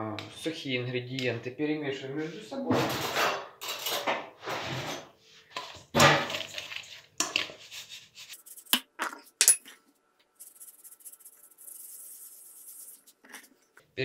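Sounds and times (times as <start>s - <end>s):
metal bowl clanking and scraping: 2.8s - 9.8s
powder hissing in a bowl: 10.4s - 13.2s.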